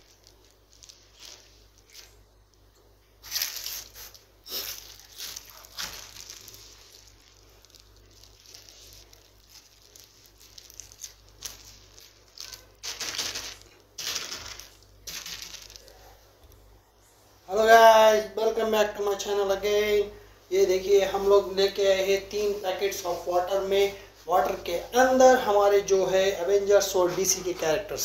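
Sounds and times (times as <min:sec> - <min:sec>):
plastic bags crinkling: 0:00.0 - 0:02.6, 0:03.2 - 0:16.3.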